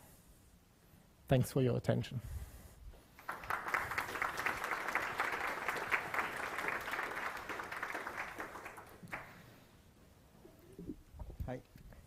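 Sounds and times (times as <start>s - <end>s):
audience applauding: 3.2s - 9.5s.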